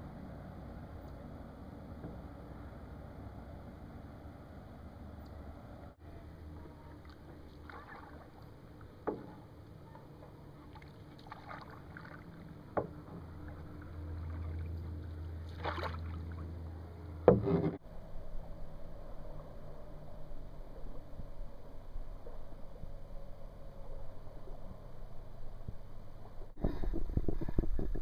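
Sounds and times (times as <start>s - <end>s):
paddle splashing in water: 7.0s - 9.4s, 10.6s - 14.8s, 15.4s - 16.5s
sharp knocks on canoe: 17.2s - 17.8s.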